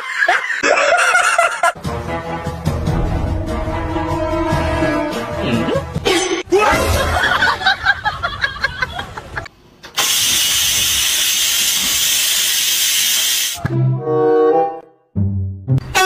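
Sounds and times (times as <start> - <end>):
rice cooker steam hissing: 10.0 - 13.6.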